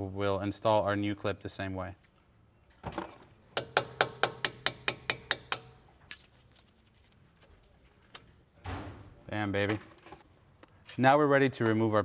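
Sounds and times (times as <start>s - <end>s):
hammer tapping metal punch: 3.5s - 5.8s.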